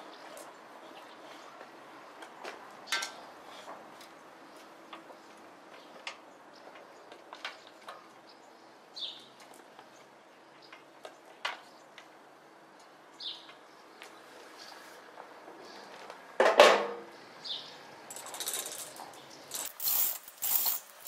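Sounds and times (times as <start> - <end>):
metallic clinks of hand tools: 18.1 - 21.0.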